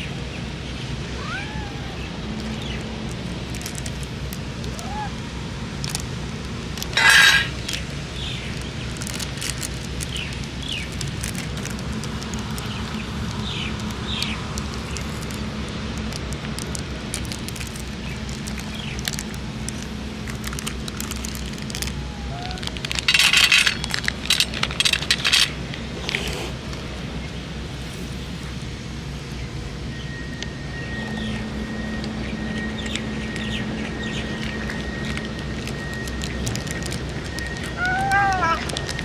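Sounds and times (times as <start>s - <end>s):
steady background hum: 0.0s - 39.0s
kibble rattling into metal bowl: 6.8s - 7.8s, 20.4s - 25.6s.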